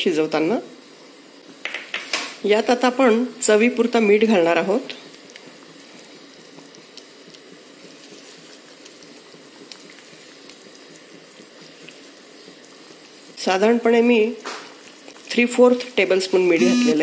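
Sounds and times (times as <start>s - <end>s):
curry bubbling with small pops: 3.6s - 16.4s.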